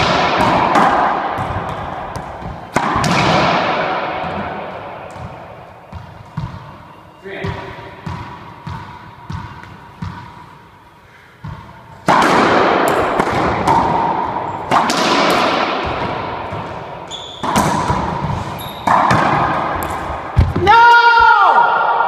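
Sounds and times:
ball bouncing on floor: 0.0s - 3.6s, 4.2s - 6.7s, 7.4s - 10.3s, 11.4s - 21.4s
hard racquetball strikes echoing: 0.0s - 22.0s
sneakers squeaking on hardwood: 5.1s - 10.5s, 15.8s - 20.6s.

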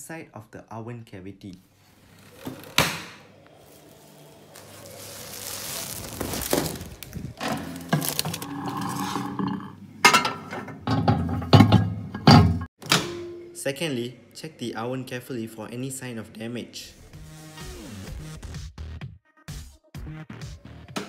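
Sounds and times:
plastic packaging rustling: 3.5s - 9.5s
knocks and glassy clinks: 10.1s - 13.4s.

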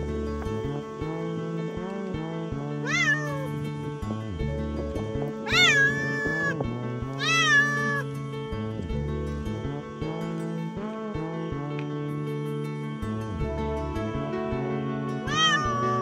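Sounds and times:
cat meowing: 2.8s - 3.6s, 5.5s - 6.6s, 7.2s - 8.1s, 15.3s - 16.0s.

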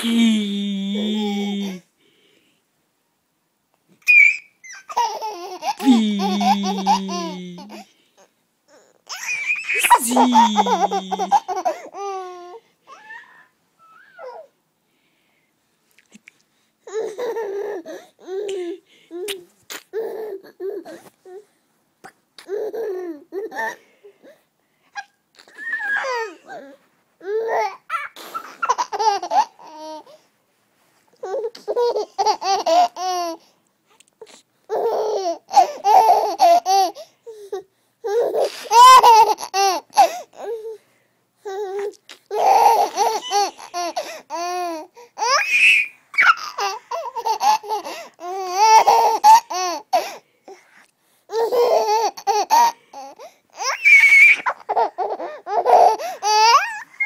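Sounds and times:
baby squealing: 4.0s - 7.8s, 9.1s - 11.6s, 25.4s - 26.4s, 45.2s - 46.8s, 53.6s - 57.0s
baby giggling: 4.8s - 7.8s, 9.1s - 12.1s, 38.1s - 40.2s, 42.3s - 44.8s, 46.2s - 49.8s.

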